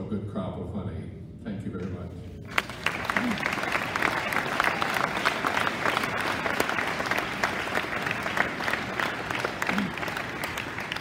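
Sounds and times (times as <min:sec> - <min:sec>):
audience applauding: 0:02.5 - 0:11.0.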